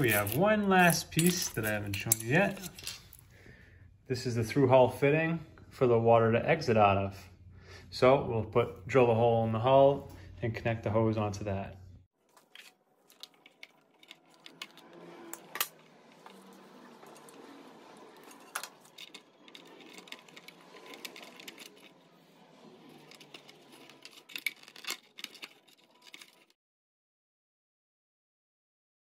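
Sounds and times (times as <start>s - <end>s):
pliers and wiring clicking and rattling: 0.0s - 3.3s, 12.3s - 22.0s, 22.8s - 26.6s.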